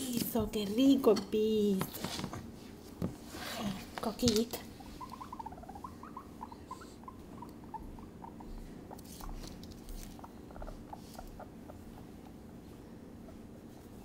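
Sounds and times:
guinea pig squeaking: 0:03.6 - 0:14.0.

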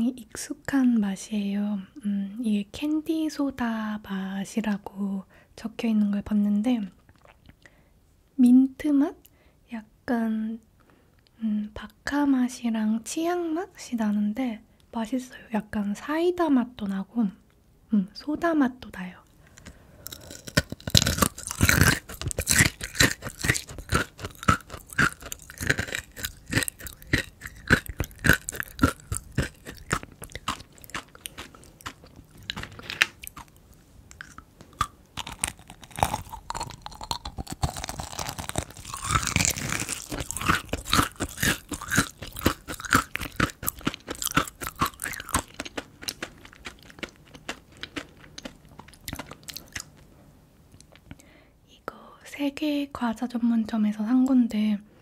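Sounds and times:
chewing crunchy candy: 0:19.5 - 0:50.1.

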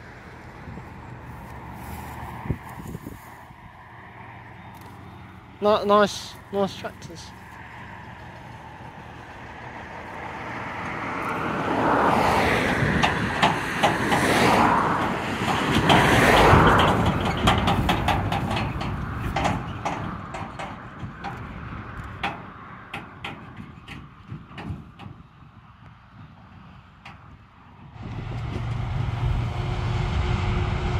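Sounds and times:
tractor engine passing: 0:00.0 - 0:24.0, 0:27.6 - 0:30.9
trailer knocking and rattling: 0:08.0 - 0:30.9.

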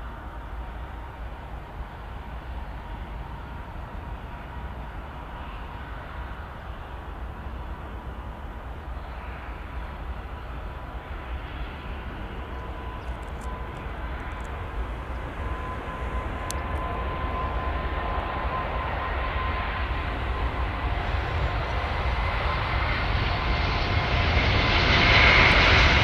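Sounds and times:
jet engine whine: 0:00.0 - 0:26.0
jet rumble: 0:00.0 - 0:26.0.

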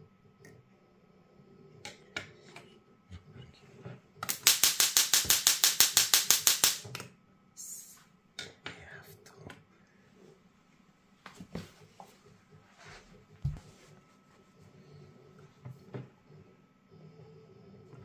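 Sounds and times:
tesla coil electric snaps: 0:04.2 - 0:07.1.

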